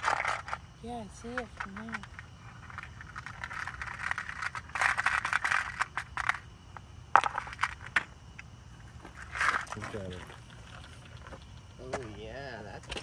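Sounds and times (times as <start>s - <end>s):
rattling and scraping of handling: 0.0s - 6.4s, 8.8s - 12.2s.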